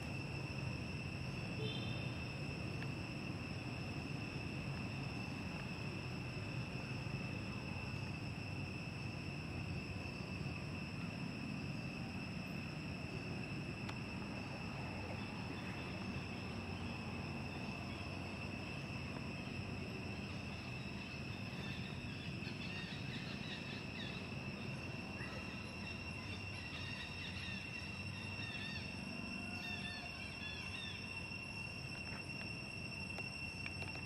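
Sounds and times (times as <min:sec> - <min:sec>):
high-pitched insect drone: 0:00.0 - 0:34.0.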